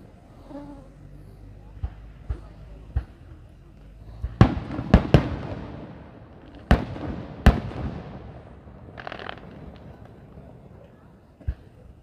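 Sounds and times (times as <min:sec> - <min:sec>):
firework shells booming: 0:04.2 - 0:12.0.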